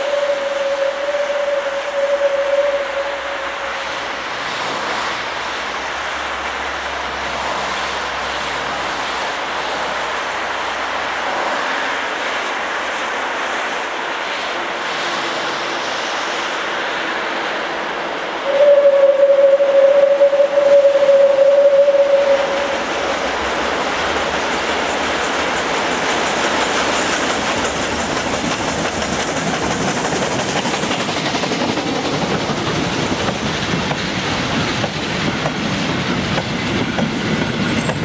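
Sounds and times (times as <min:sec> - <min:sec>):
steam whistle blast: 0:00.0 - 0:04.0, 0:18.4 - 0:23.0
steam locomotive exhaust: 0:00.0 - 0:38.0.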